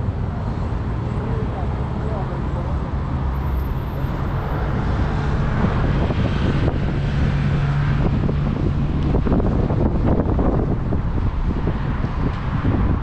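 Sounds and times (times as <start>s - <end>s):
low rumble of city traffic: 0.0s - 13.0s
wind buffeting microphone: 4.4s - 13.0s.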